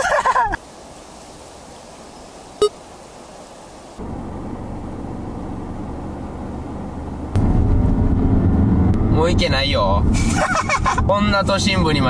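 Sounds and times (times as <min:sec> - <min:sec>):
car engine and road rumble: 0:03.1 - 0:12.0.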